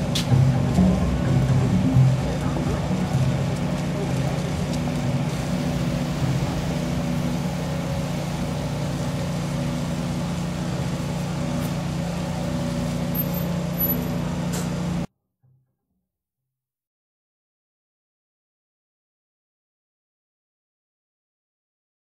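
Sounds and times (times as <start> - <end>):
fire engine motor droning: 0.0 - 15.1.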